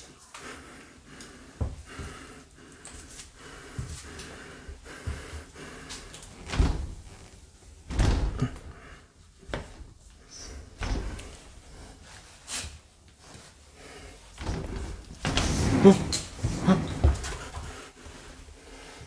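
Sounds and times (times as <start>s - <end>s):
door thumping: 6.5s - 7.1s, 7.8s - 8.8s, 10.7s - 11.4s, 14.4s - 17.3s.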